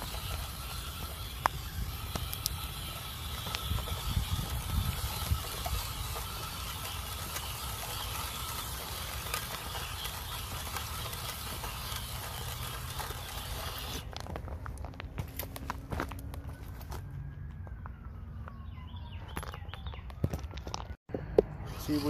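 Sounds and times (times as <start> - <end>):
ticks and clicks: 0.0 - 14.3
rc car motor and gear whine: 0.0 - 17.0, 18.4 - 22.0.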